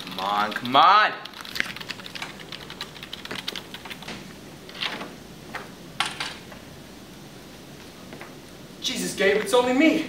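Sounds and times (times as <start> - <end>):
computer keyboard typing: 0.0 - 4.2.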